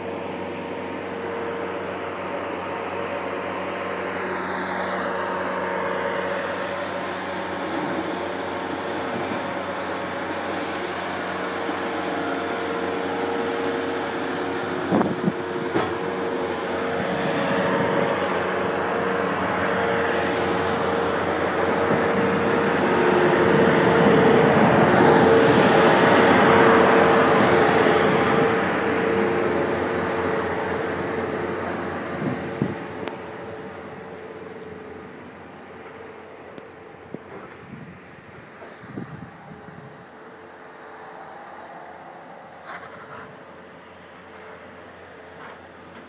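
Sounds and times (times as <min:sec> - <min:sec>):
loader engine droning: 0:00.0 - 0:46.0.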